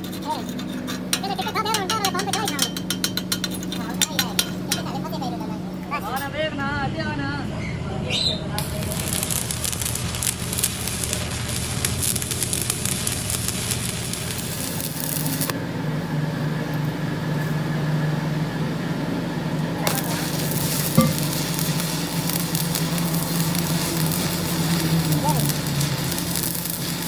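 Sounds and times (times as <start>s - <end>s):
steady low hum: 0.0s - 27.0s
welding arc crackling: 8.5s - 15.6s, 19.8s - 27.0s.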